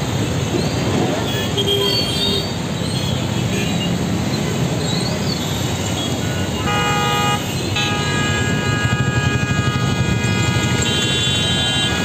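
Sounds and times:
rumble of engines and tyres: 0.0s - 12.0s
vehicle horns honking: 6.0s - 12.0s.

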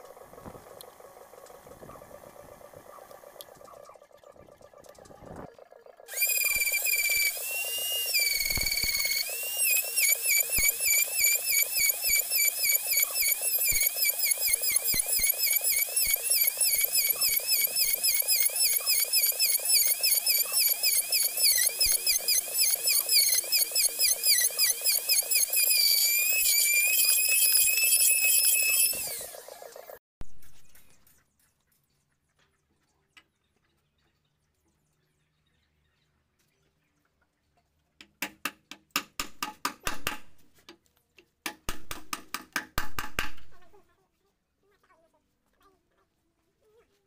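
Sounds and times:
router cutting wood: 6.1s - 29.5s.

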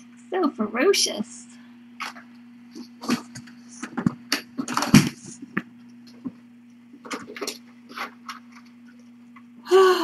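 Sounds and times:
steady low hum: 0.0s - 10.0s
kittens scratching and knocking: 2.0s - 9.4s.

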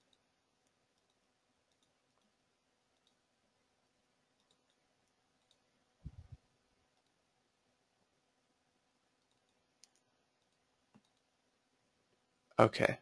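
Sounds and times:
faint computer mouse clicks: 0.0s - 3.2s, 4.3s - 6.3s, 9.2s - 11.3s.

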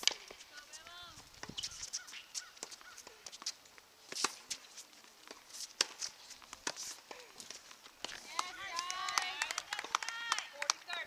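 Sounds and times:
tennis balls struck by racquets: 0.0s - 4.6s, 5.2s - 11.0s
light footsteps on court: 0.0s - 11.0s.

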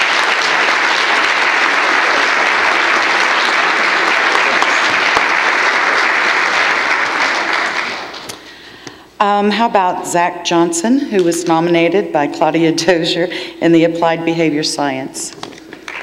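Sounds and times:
audience applauding: 0.0s - 8.4s, 15.7s - 16.0s.

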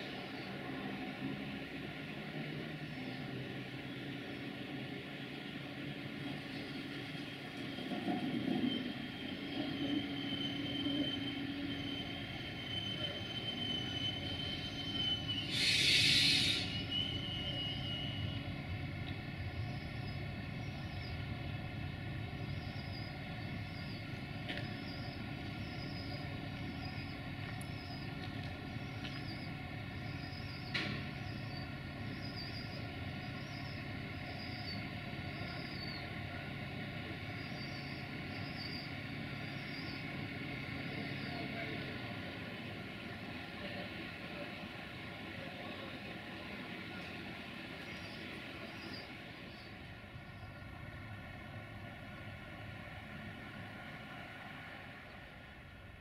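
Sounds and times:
diesel train engine humming: 0.0s - 56.0s
high wheel squeal: 6.7s - 18.6s
air hiss: 15.4s - 16.9s.

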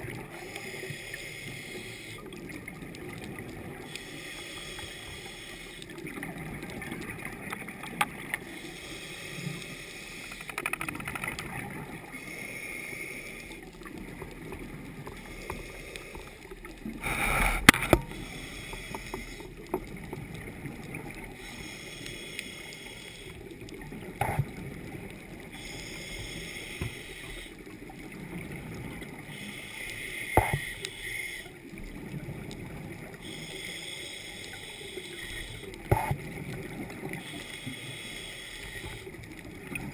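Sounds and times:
bubbling and hissing: 0.0s - 39.9s
underwater regulator breathing: 0.3s - 2.8s, 3.8s - 6.2s, 8.3s - 10.9s, 12.0s - 20.0s, 21.2s - 24.6s, 25.4s - 27.7s, 29.1s - 31.7s, 33.1s - 36.3s, 36.9s - 39.9s.

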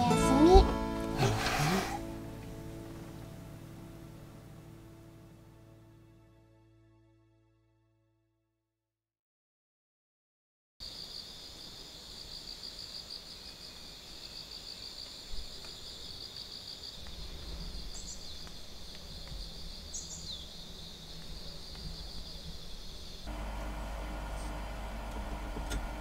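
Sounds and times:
insects chirring: 10.8s - 23.8s
low hum: 17.2s - 26.0s.

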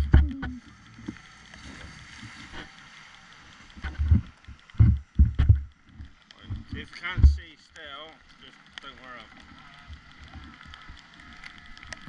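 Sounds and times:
low thumps and rumble: 0.0s - 1.2s, 3.8s - 7.5s
faint steady hiss: 0.0s - 12.0s.

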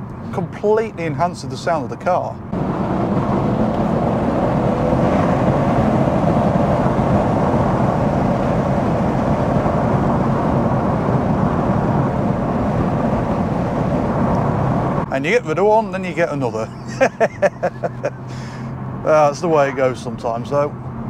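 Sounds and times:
car engine and exhaust cruising: 0.0s - 21.0s
road noise: 0.0s - 21.0s.

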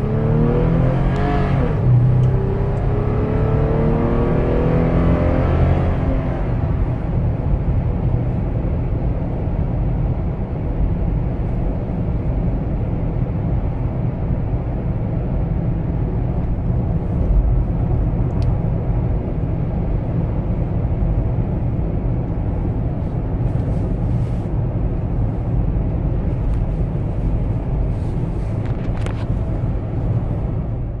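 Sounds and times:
car cabin road rumble: 0.0s - 31.0s.

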